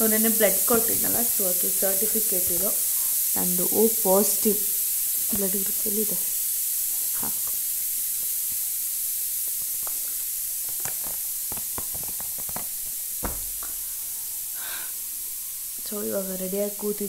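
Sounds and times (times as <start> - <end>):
steady high hiss: 0.0 - 17.0
paper rustling and clicking: 10.6 - 13.7.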